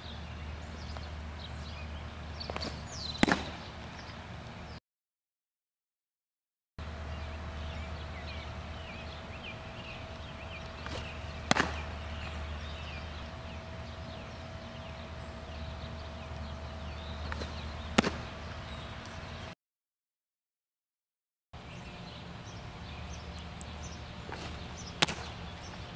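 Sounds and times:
birds chirping: 0.0 - 4.8, 6.8 - 19.6, 21.6 - 25.9
faint hum: 0.0 - 4.8, 6.8 - 19.6, 21.6 - 25.9
ball smacking into mitt: 2.5 - 3.7, 10.8 - 12.3, 17.3 - 18.3, 24.3 - 25.4.

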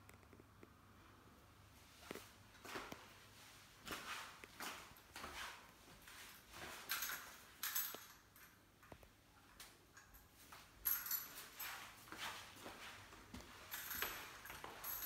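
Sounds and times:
footsteps on tiled floor: 1.9 - 8.1, 10.4 - 15.0.

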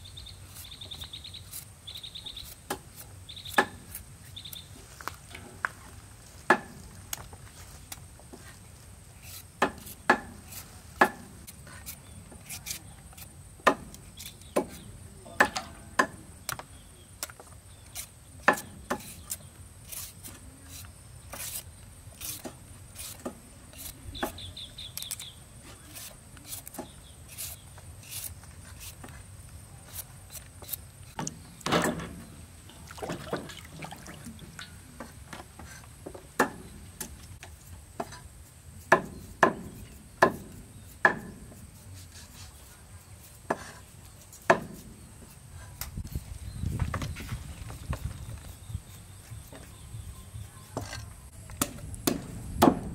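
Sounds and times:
hand peeler scraping: 0.5 - 4.7, 9.1 - 14.9, 17.2 - 31.4
cleaver chopping on wooden block: 11.0 - 11.3, 13.6 - 16.7, 18.4 - 19.2, 38.9 - 41.5, 51.6 - 52.9.

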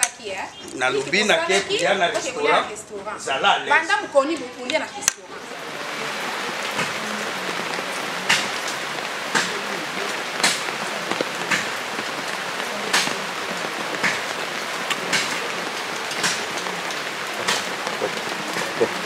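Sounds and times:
steady rain: 0.0 - 19.0
sharp drip ticks: 6.6 - 19.0.

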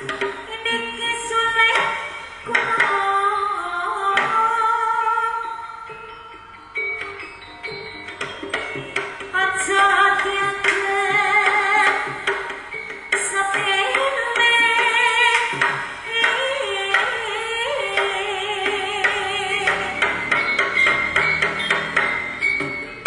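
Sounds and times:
person singing: 0.0 - 6.1, 9.3 - 12.5, 13.2 - 20.4
gamelan-style percussion: 0.0 - 23.0.

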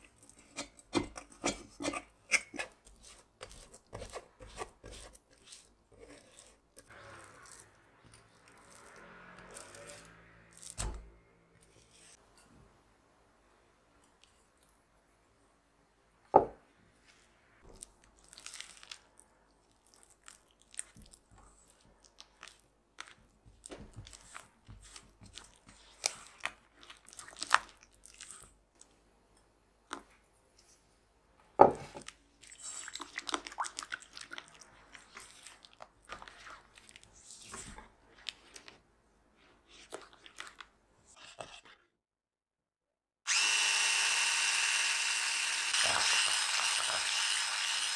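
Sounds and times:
spatula wet scraping in bowl: 0.0 - 10.9, 32.4 - 38.8, 39.4 - 41.9.

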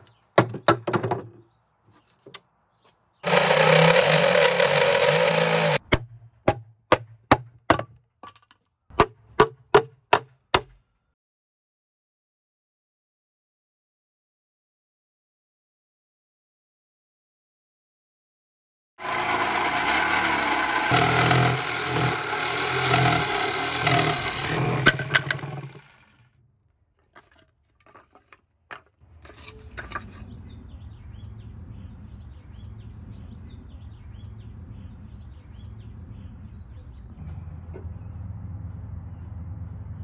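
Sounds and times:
birds chirping: 0.0 - 5.8, 30.1 - 39.4
reciprocating saw cutting wood: 3.2 - 5.8, 19.0 - 26.2.

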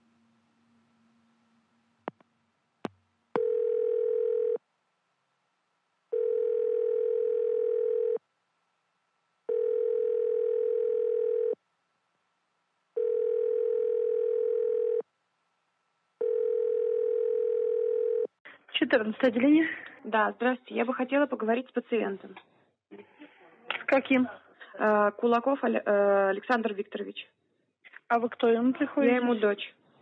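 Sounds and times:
telephone ringback tone beeping: 3.4 - 4.6, 6.2 - 8.2, 9.5 - 11.6, 13.0 - 15.0, 16.2 - 18.3.

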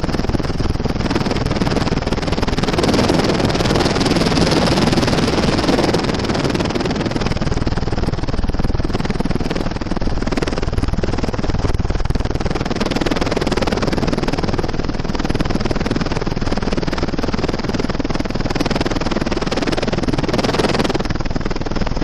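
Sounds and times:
small aircraft cabin engine noise: 0.0 - 22.0.

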